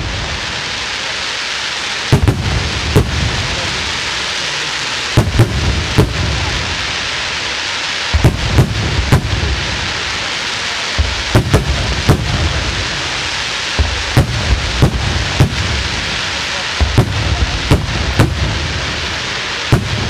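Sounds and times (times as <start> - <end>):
fireworks bangs: 0.0 - 20.0
steady hiss: 0.0 - 20.0.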